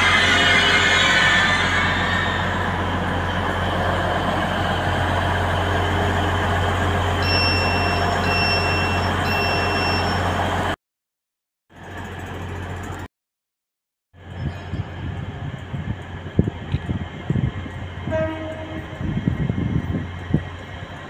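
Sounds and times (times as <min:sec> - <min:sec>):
train diesel engines idling: 0:00.0 - 0:10.8, 0:11.8 - 0:13.1, 0:14.2 - 0:21.0
high beeps: 0:07.2 - 0:10.4.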